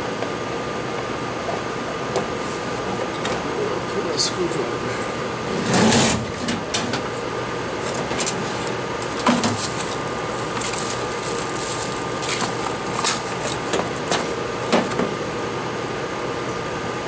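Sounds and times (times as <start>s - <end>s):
steady background hum: 0.0s - 17.0s
cardboard box handled: 9.3s - 13.6s.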